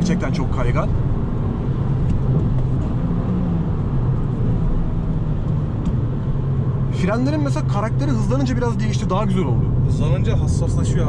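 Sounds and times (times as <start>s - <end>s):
car engine hum from inside cabin: 0.0s - 11.0s
road rumble and wet tyre noise: 0.0s - 11.0s.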